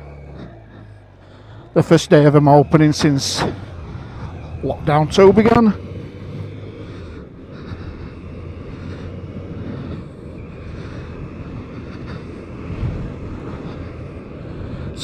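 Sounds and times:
motorcycle engine droning: 0.0s - 15.0s
wind noise: 2.4s - 15.0s.

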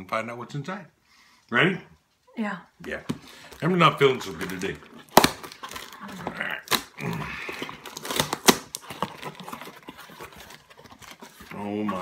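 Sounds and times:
packing tape snapping and scraping: 3.0s - 12.0s
tape ripping: 3.0s - 12.0s.

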